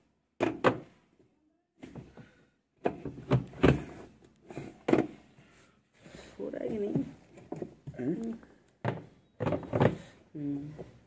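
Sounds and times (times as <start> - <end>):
hard plastic knocks and clunks: 1.8 - 5.2, 8.8 - 10.1.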